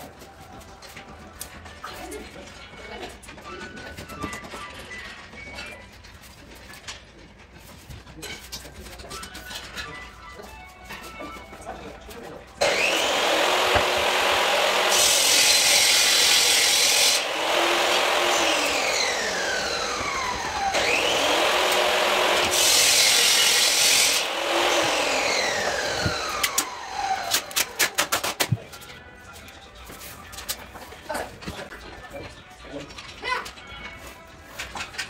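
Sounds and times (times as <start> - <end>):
harsh sawing scrape with whine: 12.6 - 28.2.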